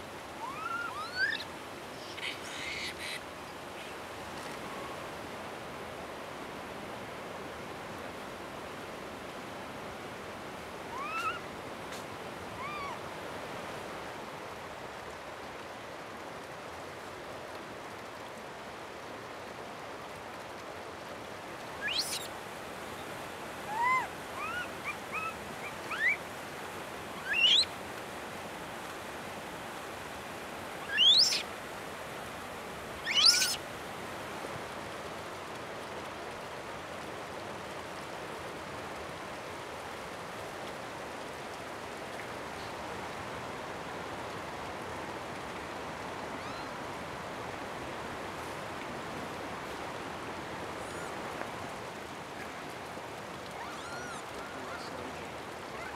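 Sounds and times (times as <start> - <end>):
flowing spring water: 0.0 - 55.9
monkeys calling: 0.4 - 3.2, 10.9 - 11.4, 12.6 - 13.0, 21.8 - 22.3, 23.7 - 26.2, 27.2 - 27.7, 30.8 - 31.5, 33.0 - 33.6, 53.5 - 55.9.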